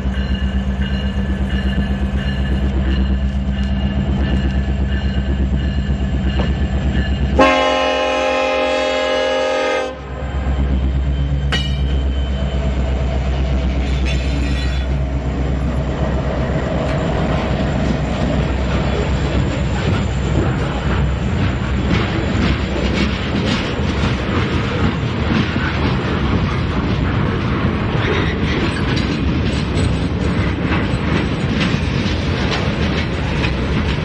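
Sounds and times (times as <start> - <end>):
diesel locomotives rumbling past: 0.0 - 34.0
train air horn: 7.4 - 10.1.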